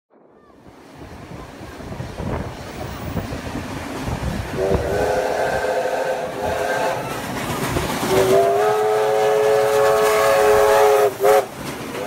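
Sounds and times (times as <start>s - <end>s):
train wheels rumbling on rails: 0.4s - 12.0s
steam locomotive whistle: 4.5s - 7.3s, 8.0s - 12.0s.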